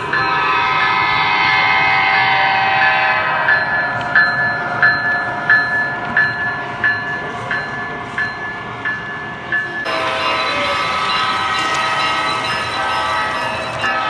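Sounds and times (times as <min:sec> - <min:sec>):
diesel horn: 0:00.0 - 0:03.8
locomotive bell ringing: 0:00.0 - 0:14.0
train rumbling on track: 0:00.0 - 0:14.0.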